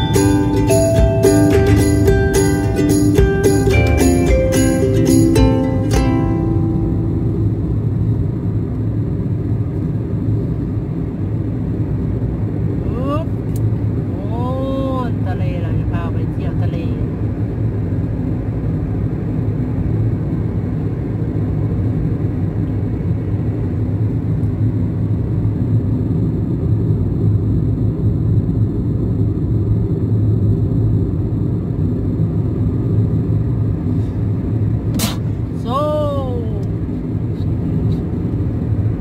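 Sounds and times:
tone sliding down in pitch: 0.0s - 8.0s
car road and engine rumble: 0.0s - 39.0s
sharp click: 34.9s - 35.3s.

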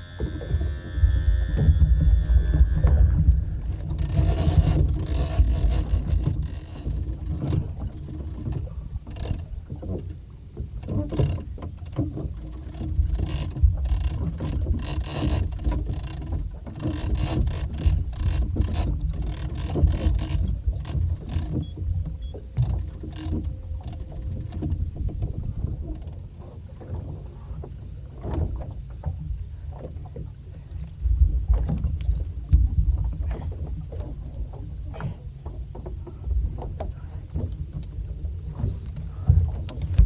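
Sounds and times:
fishing reel clicker ticking: 0.0s - 8.4s, 12.4s - 21.6s, 22.6s - 24.7s
steady low rumble: 0.0s - 10.6s, 29.3s - 40.0s.

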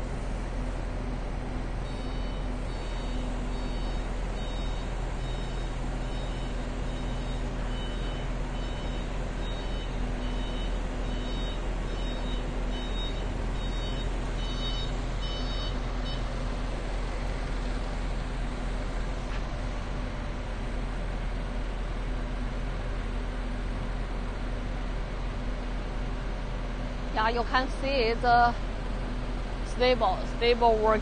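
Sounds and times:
diesel engine running: 0.0s - 31.0s
electronic warning beeper: 1.9s - 16.3s.

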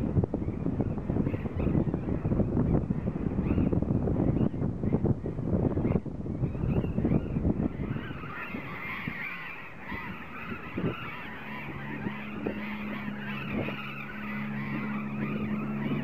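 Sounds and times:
wind on microphone: 0.0s - 16.0s
parrots calling: 7.1s - 16.0s.

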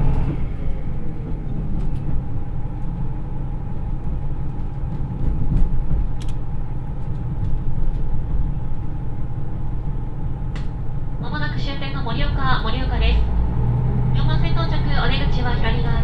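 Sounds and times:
train wheels on track: 0.0s - 11.2s
diesel engine rumble: 0.0s - 16.0s.

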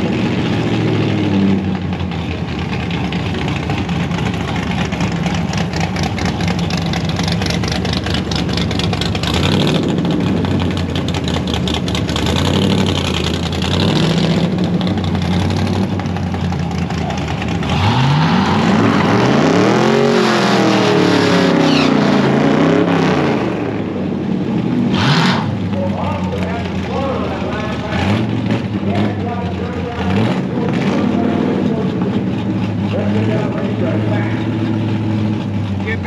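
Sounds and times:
drag car engines idling: 0.0s - 36.0s
engines revving on launch: 11.8s - 36.0s.

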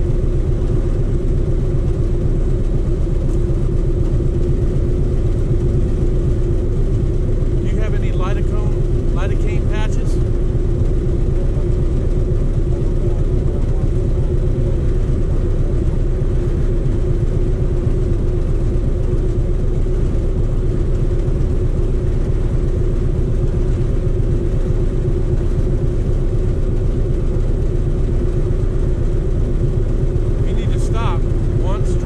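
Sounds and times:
motorcycle engine idling: 0.0s - 32.0s.

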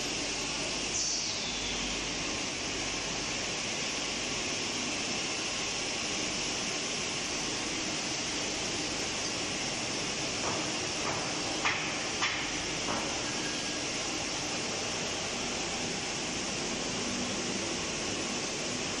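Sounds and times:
steady machinery hiss: 0.0s - 19.0s.

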